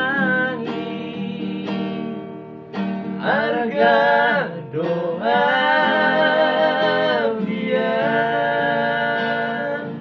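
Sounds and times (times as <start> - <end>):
men singing together: 0.0 - 2.0, 3.2 - 10.0
acoustic guitar: 0.0 - 10.0.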